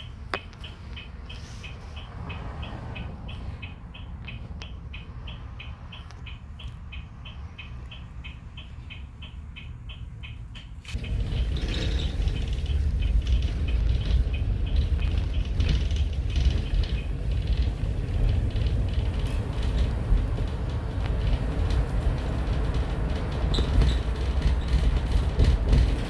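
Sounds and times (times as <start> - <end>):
bus engine and tyres rumbling: 0.0 - 26.0
light rattling: 10.9 - 26.0.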